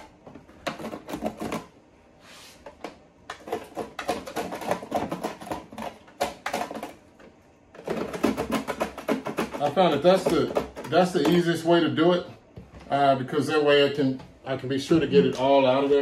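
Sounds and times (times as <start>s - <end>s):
razor scraping plastic: 0.0s - 11.7s.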